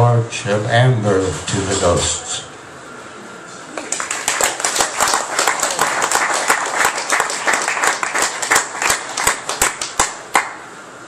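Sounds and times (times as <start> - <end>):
audience applauding: 3.7 - 10.6.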